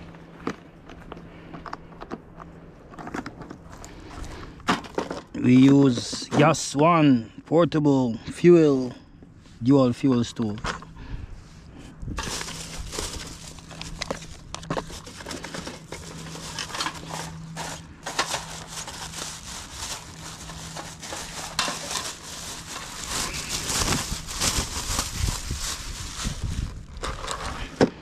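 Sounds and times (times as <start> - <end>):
plastic bag crinkling: 12.2 - 27.8.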